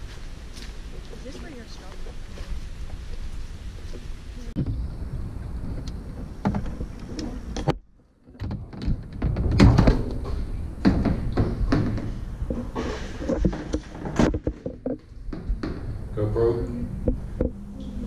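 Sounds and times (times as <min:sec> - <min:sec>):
paddles knocking on metal culvert: 0:08.4 - 0:15.9.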